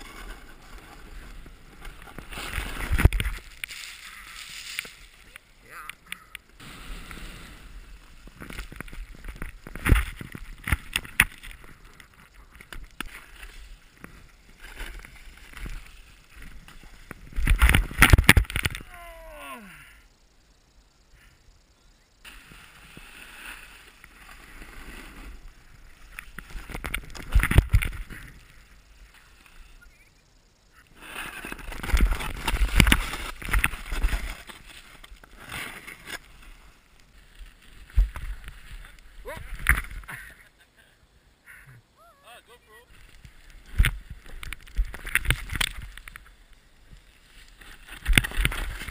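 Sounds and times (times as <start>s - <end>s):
snowboard scraping over snow: 0.0s - 5.2s, 6.6s - 10.9s, 22.3s - 27.4s.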